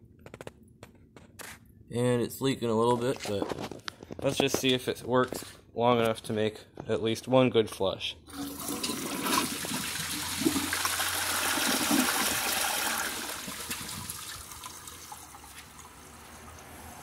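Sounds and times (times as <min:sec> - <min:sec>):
toilet flushing: 0:08.3 - 0:17.0.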